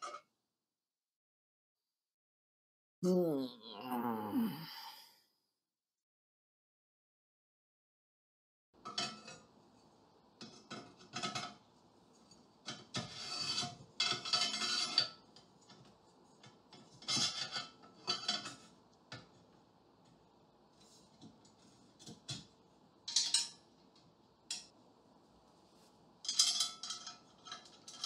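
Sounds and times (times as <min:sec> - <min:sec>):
metal bars scraping and clinking: 0:13.0 - 0:15.2, 0:26.2 - 0:28.0.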